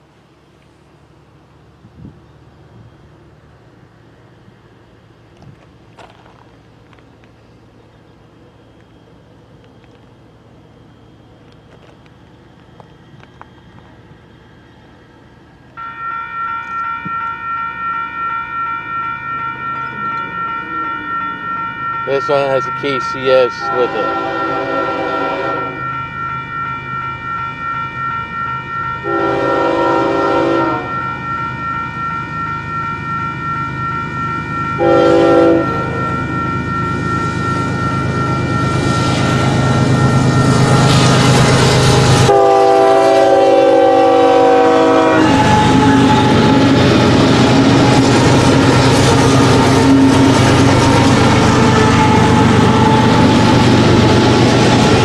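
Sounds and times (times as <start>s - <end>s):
locomotive engine rumble: 0.0s - 55.0s
rail cars rumbling by: 0.0s - 55.0s
train wheel noise: 0.0s - 55.0s
train air horn blasts: 22.1s - 26.0s, 29.0s - 31.6s, 34.7s - 54.0s.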